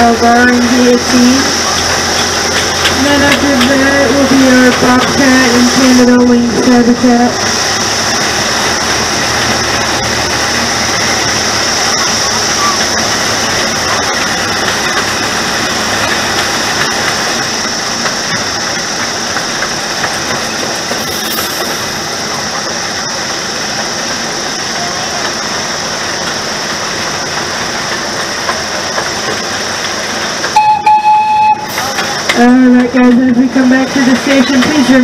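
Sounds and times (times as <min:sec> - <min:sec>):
miniature train running on track: 0:00.0 - 0:35.0
train whistle: 0:30.6 - 0:32.0.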